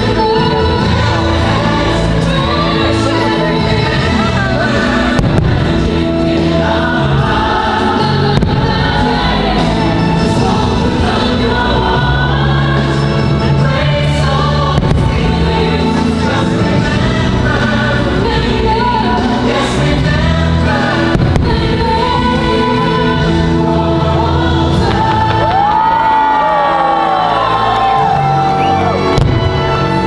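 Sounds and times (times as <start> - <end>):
choir singing over sustained chords: 0.0 - 30.0
firework bangs: 4.9 - 6.6, 8.3 - 9.4, 14.7 - 17.0, 20.9 - 22.8, 29.1 - 30.0.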